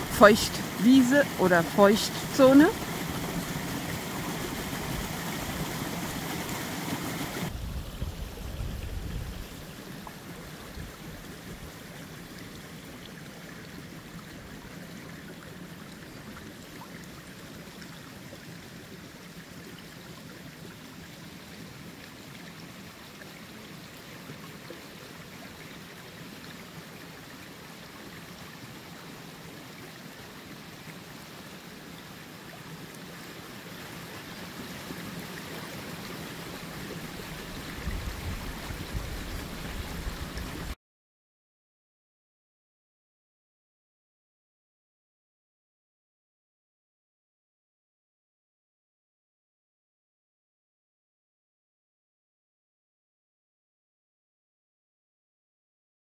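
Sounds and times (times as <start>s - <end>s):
shallow water flowing: 0.0s - 40.8s.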